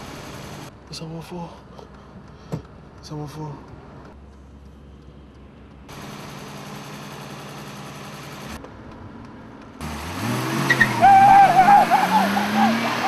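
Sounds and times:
car engine running: 0.0s - 13.0s.

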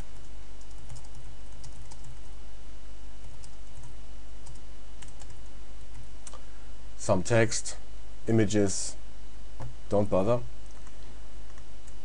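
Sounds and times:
low electrical hum: 0.0s - 12.0s
computer keyboard typing: 0.6s - 2.3s, 3.2s - 6.1s, 10.6s - 10.9s.

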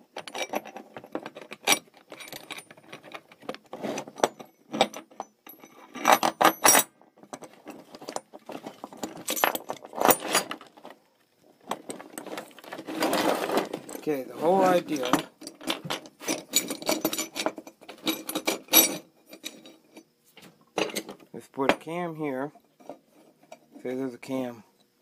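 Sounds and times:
metal parts clinking and rattling: 0.0s - 11.0s, 11.6s - 20.1s, 20.8s - 21.8s.

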